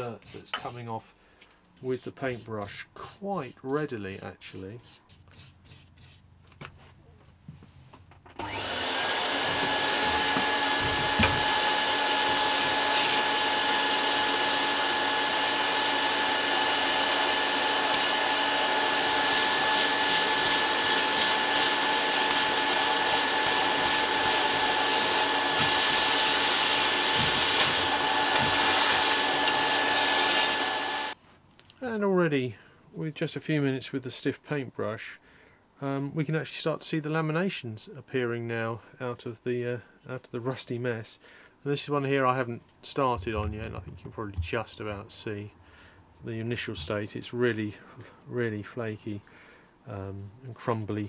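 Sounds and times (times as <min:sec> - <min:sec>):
vacuum cleaner whining: 0:08.4 - 0:31.2.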